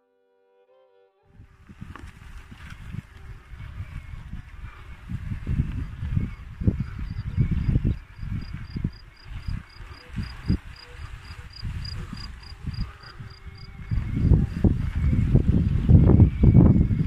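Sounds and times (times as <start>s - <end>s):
wind rumbling on microphone: 1.3s - 17.0s
insect chirping: 5.0s - 17.0s.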